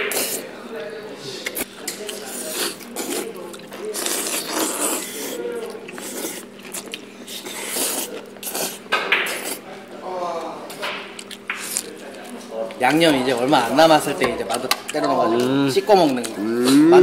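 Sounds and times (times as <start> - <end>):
people slurping noodles: 0.0 - 0.4, 1.2 - 9.7.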